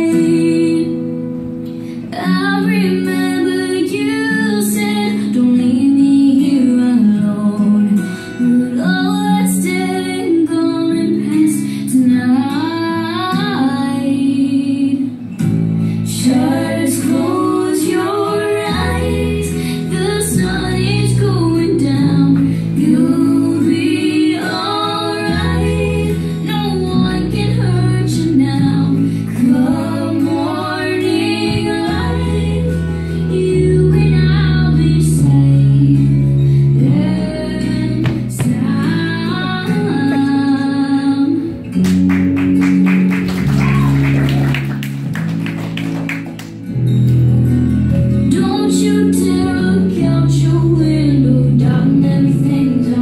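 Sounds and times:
woman singing slow song: 0:00.0 - 0:41.8, 0:48.2 - 0:53.0
bass line: 0:15.4 - 0:53.0.

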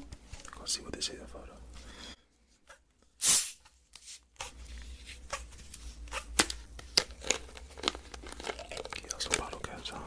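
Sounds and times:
packaging crinkling: 0:04.4 - 0:10.0.

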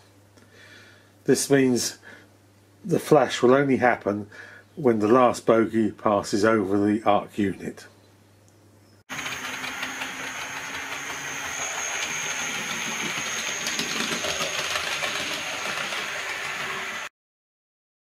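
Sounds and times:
model train motor whirring: 0:09.1 - 0:17.1.

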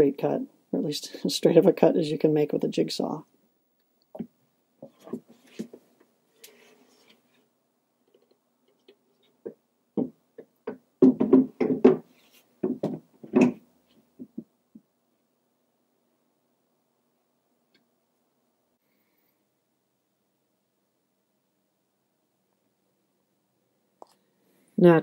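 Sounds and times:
wooden shelf knocking on metal: 0:10.0 - 0:13.6.

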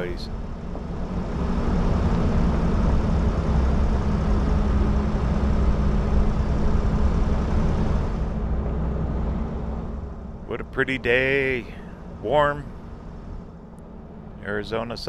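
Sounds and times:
tyres on dirt road: 0:00.0 - 0:15.0
van engine hum: 0:00.0 - 0:15.0.

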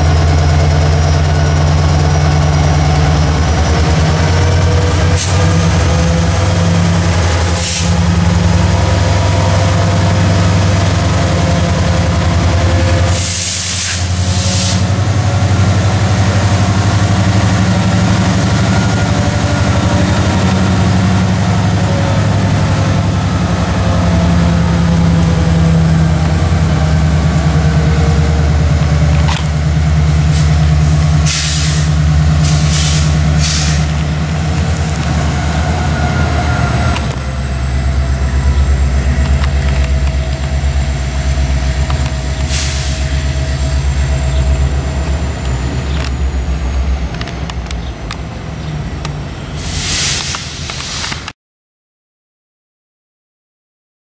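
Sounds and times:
diesel locomotive engines rumbling: 0:00.0 - 0:51.3
short hisses: 0:13.1 - 0:14.8, 0:49.6 - 0:51.2.

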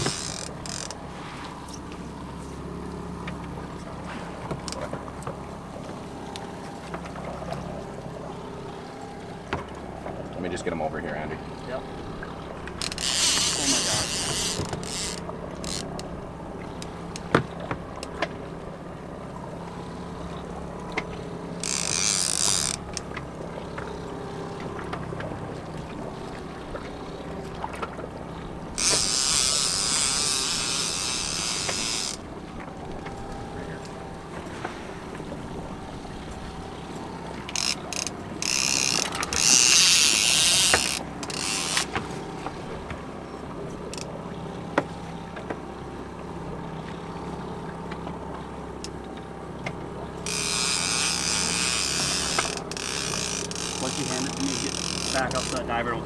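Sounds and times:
fishing reel clicking: 0:00.0 - 0:01.0, 0:12.7 - 0:16.1, 0:21.6 - 0:23.1, 0:28.7 - 0:32.2, 0:37.5 - 0:42.0, 0:50.2 - 0:55.6
boat engine hum: 0:00.0 - 0:56.0
reel drag buzzing: 0:00.0 - 0:56.0.

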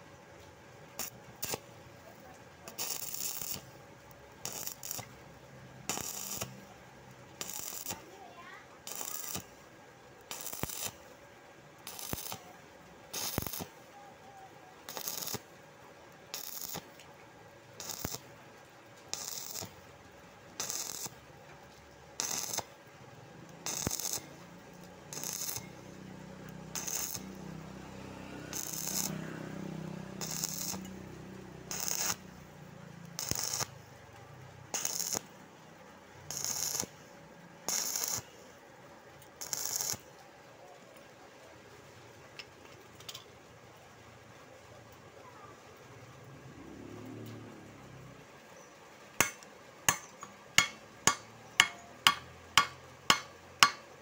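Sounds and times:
welding arc crackling: 0:01.0 - 0:11.1, 0:11.8 - 0:13.9, 0:14.8 - 0:15.5, 0:16.3 - 0:17.0, 0:17.8 - 0:18.3, 0:19.0 - 0:22.8, 0:23.4 - 0:35.4, 0:36.1 - 0:38.5, 0:39.3 - 0:40.1, 0:49.2 - 0:54.0.

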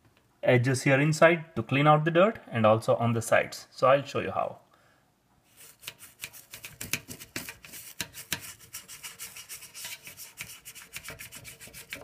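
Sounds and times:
toothbrush scrubbing metal: 0:05.5 - 0:12.0.

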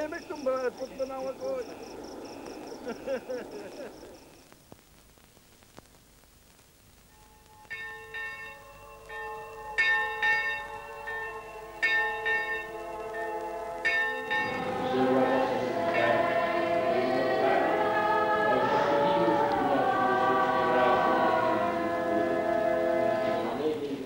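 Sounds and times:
church bells ringing: 0:07.3 - 0:17.8
choir singing: 0:12.5 - 0:24.0.

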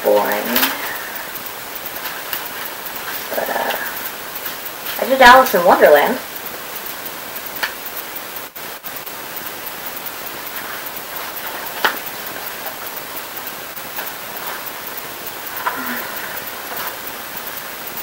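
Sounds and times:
background hiss: 0:00.0 - 0:18.0
paper crackling: 0:10.2 - 0:17.6.

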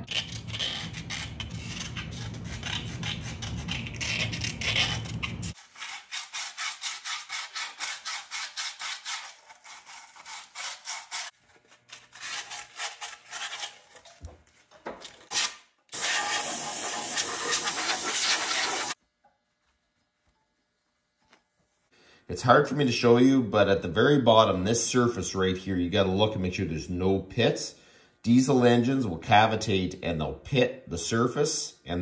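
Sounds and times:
sandpaper rasping on metal: 0:00.0 - 0:14.0, 0:16.0 - 0:19.0.

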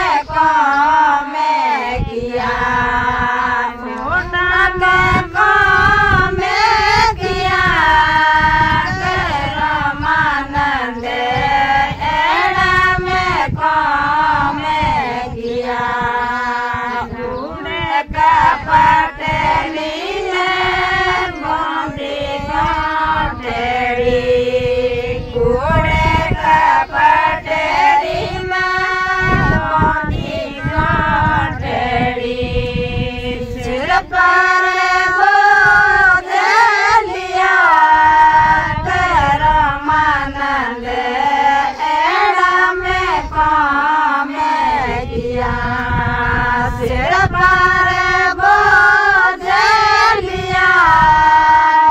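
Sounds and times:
women singing devotional folk song: 0:00.0 - 0:51.9
lead singer voice: 0:12.6 - 0:51.9.

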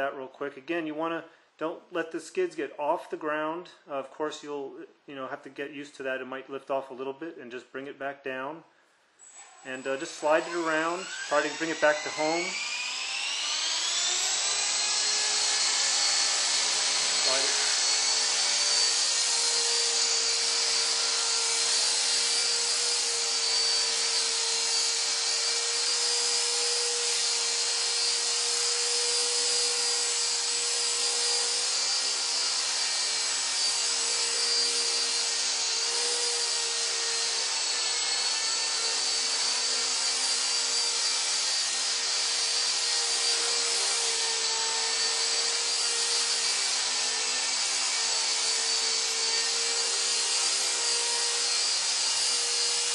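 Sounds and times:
rotor whirring: 0:10.4 - 0:23.1
rc helicopter motor whine: 0:10.4 - 0:52.9.

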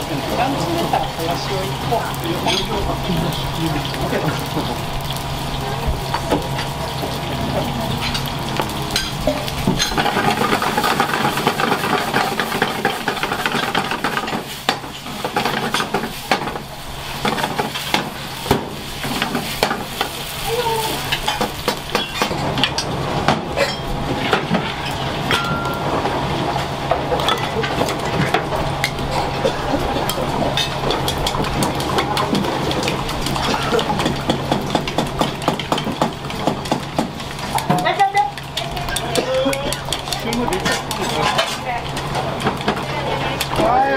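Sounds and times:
steady low hum: 0:00.0 - 0:20.7
food sizzling in frying pan: 0:00.0 - 0:43.9
metal utensils scraping pan: 0:38.9 - 0:41.8.

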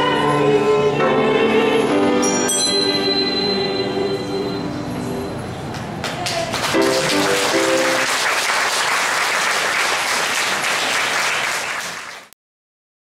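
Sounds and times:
audience applauding: 0:05.8 - 0:12.4.

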